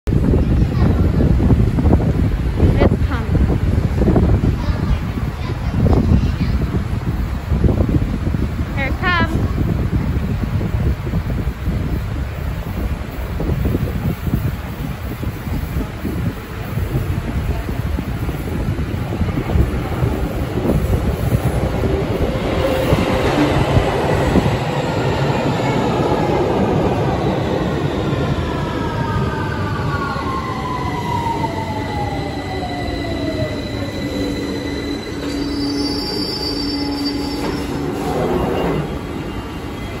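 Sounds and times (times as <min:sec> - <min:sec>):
train wheels rumbling on rail: 0:00.1 - 0:40.0
wheel and brake squeal: 0:32.8 - 0:40.0.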